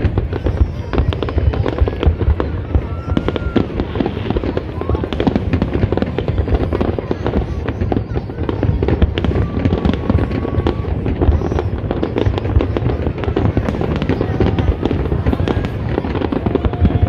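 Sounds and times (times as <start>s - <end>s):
fireworks bangs and crackles: 0.0s - 17.0s.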